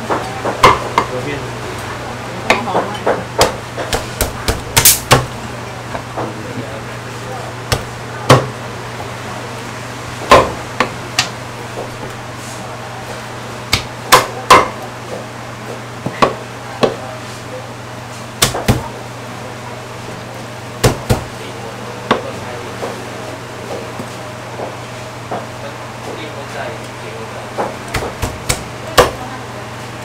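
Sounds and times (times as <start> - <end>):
steady low hum: 0.0 - 30.0
cleaver chopping on wooden block: 3.4 - 5.3, 7.7 - 8.5, 13.7 - 14.7, 18.4 - 18.8, 20.8 - 21.3, 27.6 - 29.2.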